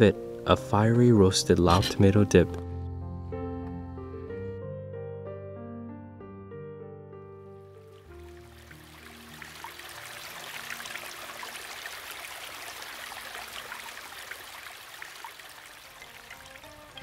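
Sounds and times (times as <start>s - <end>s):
creek trickling over stones: 8.0s - 17.0s.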